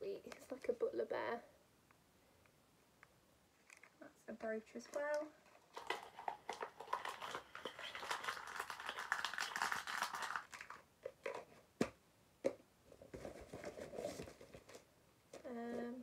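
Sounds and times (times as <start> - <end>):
packaging crinkling: 4.8 - 11.4.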